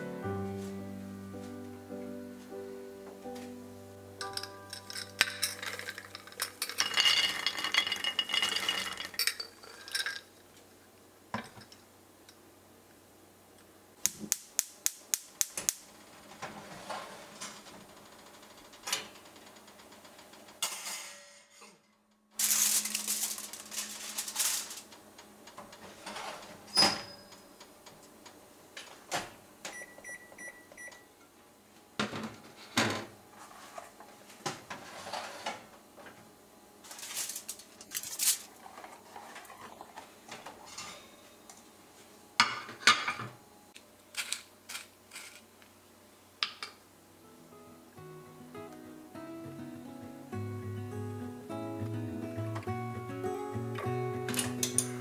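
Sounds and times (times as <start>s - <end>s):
nuts clattering onto metal tray: 4.2s - 10.3s, 22.4s - 24.9s, 36.9s - 38.5s
aluminium foil crinkling: 22.4s - 25.0s, 36.8s - 39.3s.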